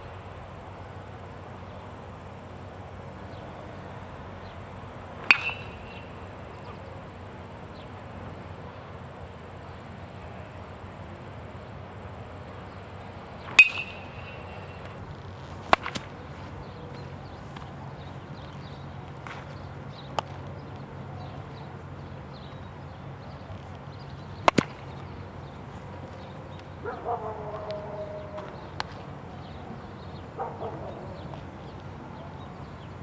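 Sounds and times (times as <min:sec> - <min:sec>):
bat cracking against ball: 0:05.2 - 0:06.8, 0:13.4 - 0:16.2, 0:19.2 - 0:19.6, 0:24.4 - 0:24.9
metallic ring: 0:13.6 - 0:14.8.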